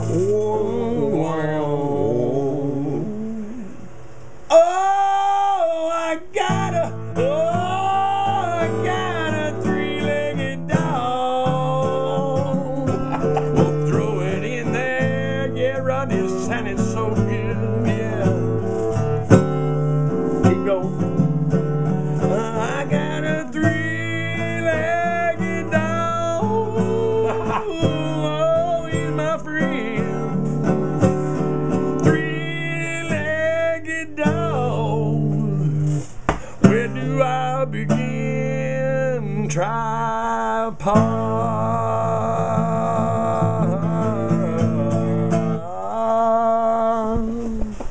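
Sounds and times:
strummed acoustic guitar: 0.0 - 47.9
wordless melody line: 6.5 - 40.0.

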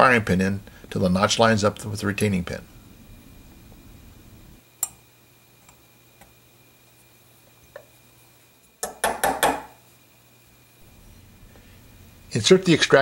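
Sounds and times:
hammer tapping pin: 8.8 - 9.7.

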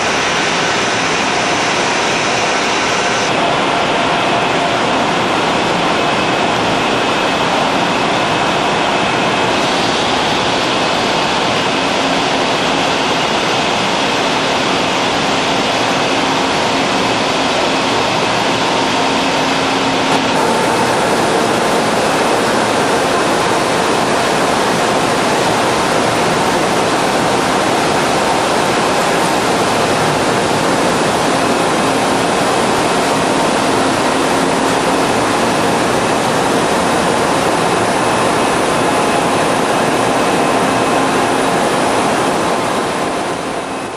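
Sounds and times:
faint hum: 18.9 - 43.9
milling cutter machining metal: 20.1 - 43.0.

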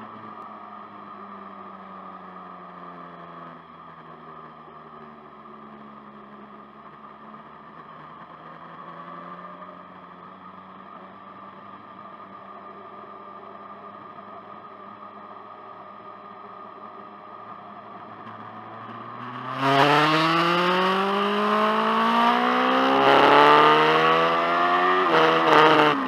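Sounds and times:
motorcycle engine revving: 18.2 - 26.0.

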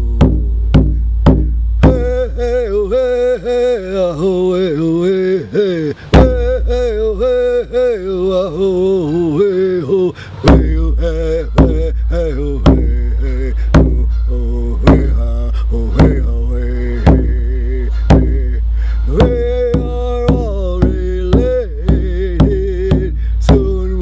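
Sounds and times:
steady drum beat: 0.0 - 2.3, 6.2 - 7.0, 10.5 - 14.1, 14.8 - 16.4, 17.0 - 24.0
man chanting without words: 1.8 - 24.0.

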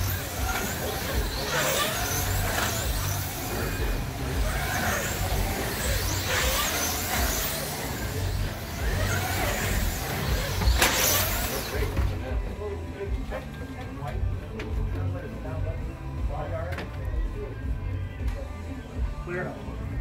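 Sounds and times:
slot car motors whining: 0.0 - 14.1.

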